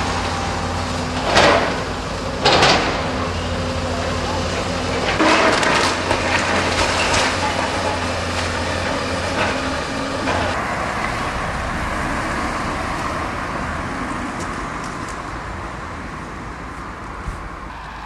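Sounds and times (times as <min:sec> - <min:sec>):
excavator diesel engine running: 0:00.0 - 0:18.0
demolition rubble knocking: 0:04.1 - 0:10.6.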